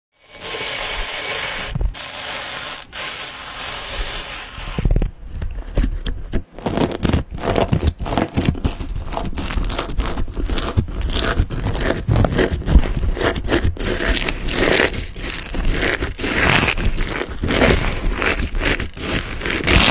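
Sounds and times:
plastic beads poured into bowl: 0.4s - 4.8s
slime crackling and popping: 6.6s - 19.9s.

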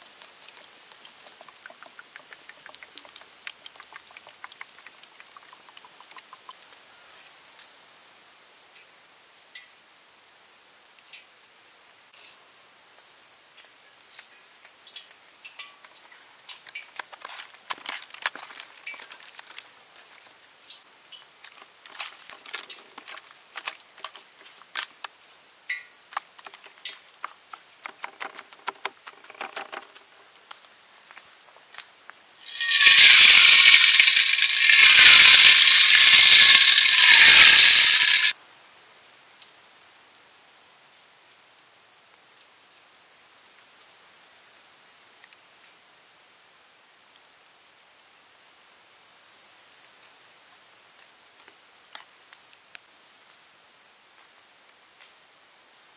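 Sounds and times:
oil sizzling and crackling in a wok: 0.0s - 7.8s, 30.0s - 38.4s
salt pattering onto meat: 29.8s - 38.4s.

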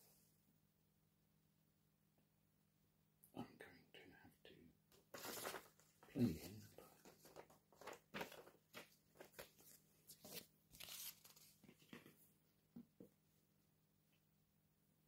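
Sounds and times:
paper rustling and crackling: 5.0s - 12.2s.

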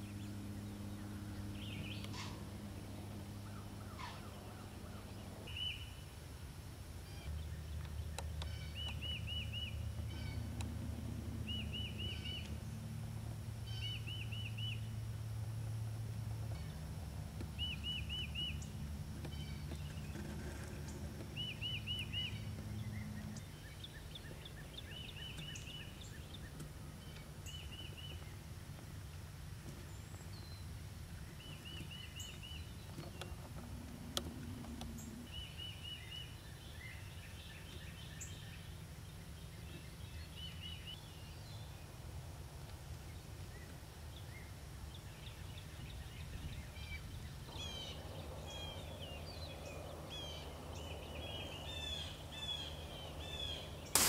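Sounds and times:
bird chirps: 7.0s - 10.6s, 11.4s - 12.6s, 17.5s - 20.3s, 21.3s - 28.4s.

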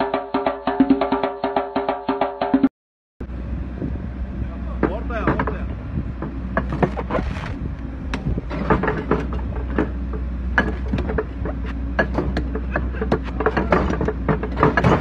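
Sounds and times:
wood creaking and cracking: 6.6s - 10.0s.

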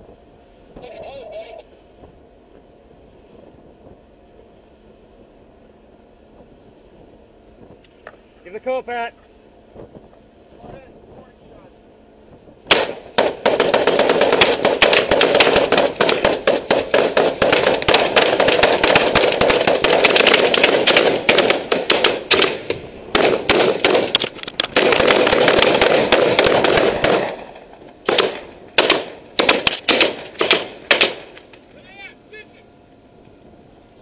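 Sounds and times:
rifle shots: 12.7s - 31.5s.

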